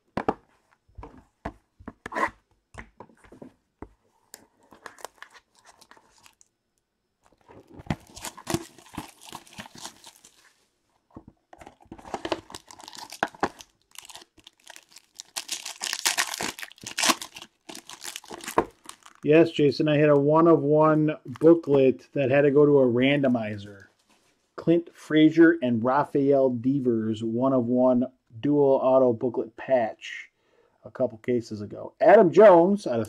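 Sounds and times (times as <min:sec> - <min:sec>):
wrapping tearing and crinkling: 0:04.6 - 0:06.5, 0:07.3 - 0:10.5, 0:11.8 - 0:19.3.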